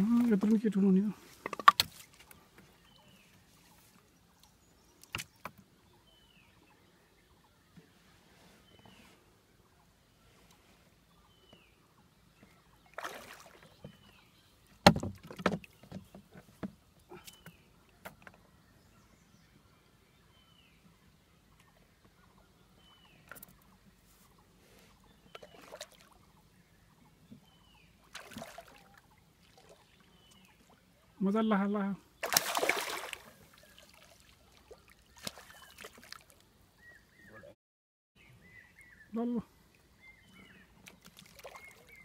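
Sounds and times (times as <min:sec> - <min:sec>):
water sloshing: 0:12.4 - 0:14.2, 0:25.3 - 0:26.4, 0:28.0 - 0:31.1, 0:32.2 - 0:36.5, 0:40.8 - 0:42.0
knocks on wooden boat hull: 0:14.8 - 0:16.8.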